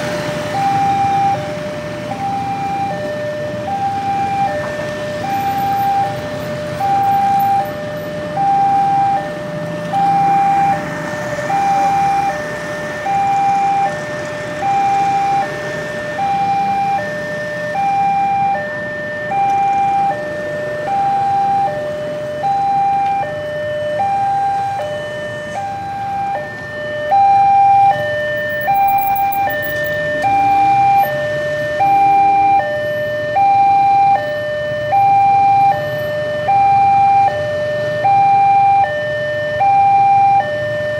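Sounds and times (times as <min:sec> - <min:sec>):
motorcycle engines passing: 0:00.0 - 0:32.8
level crossing two-tone alarm: 0:14.6 - 0:40.9.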